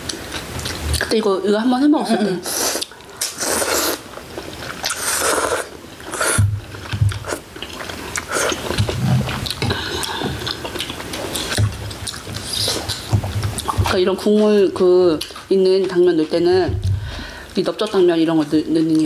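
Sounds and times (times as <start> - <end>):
slurping noodles: 2.4 - 6.5
wet chewing: 2.5 - 17.1.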